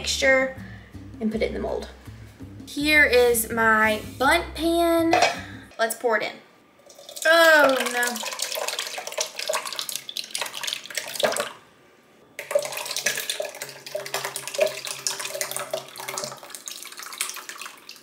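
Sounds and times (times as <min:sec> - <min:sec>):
thick mixture gloopy pouring: 0:06.8 - 0:11.6, 0:12.4 - 0:18.0.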